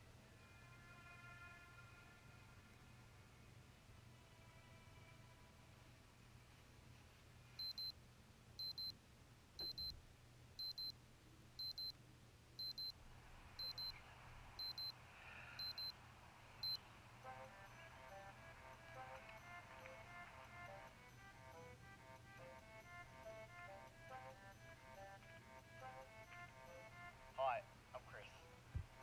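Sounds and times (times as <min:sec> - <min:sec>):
music: 0:00.0 - 0:05.9, 0:16.8 - 0:29.0
alarm clock double beeps: 0:07.6 - 0:07.9, 0:08.6 - 0:08.9, 0:09.6 - 0:09.9, 0:10.6 - 0:10.9, 0:11.6 - 0:12.0, 0:12.6 - 0:13.0, 0:13.6 - 0:14.0, 0:14.6 - 0:14.9, 0:15.6 - 0:16.0, 0:16.6 - 0:27.0.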